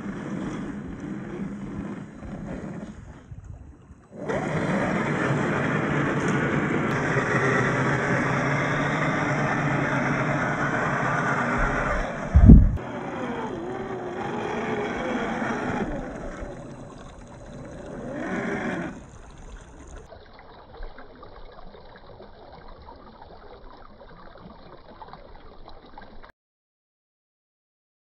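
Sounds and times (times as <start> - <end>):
electric motor whining: 4.1 - 20.1
heavy thump: 12.3 - 12.8.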